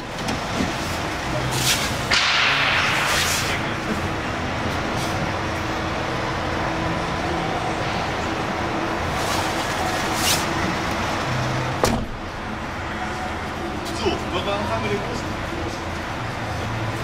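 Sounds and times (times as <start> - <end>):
sharp knock: 2.1 - 3.6.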